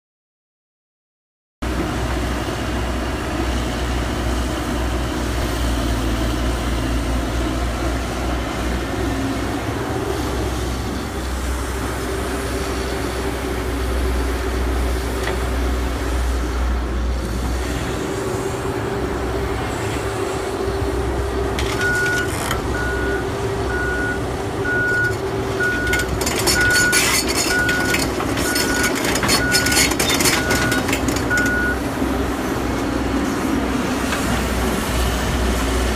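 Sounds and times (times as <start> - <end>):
excavator diesel engine running: 1.6 - 35.9
reversing alarm beeping: 21.6 - 31.8
metallic knocks and rattles: 25.0 - 31.6.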